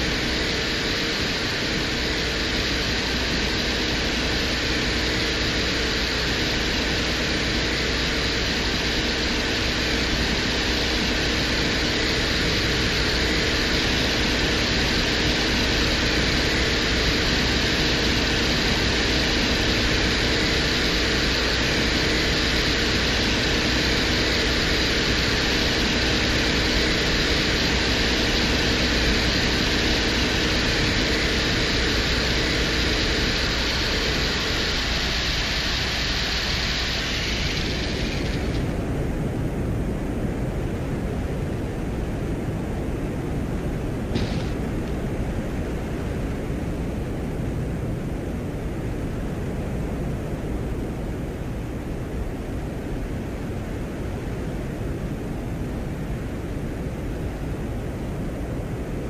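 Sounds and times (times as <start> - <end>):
even hiss: 0.0 - 41.1, 42.2 - 48.2
steady mechanical hum: 0.0 - 59.0.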